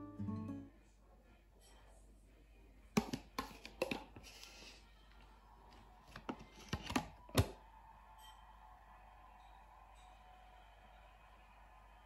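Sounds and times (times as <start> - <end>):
spoon tapping on plate: 3.0 - 4.1.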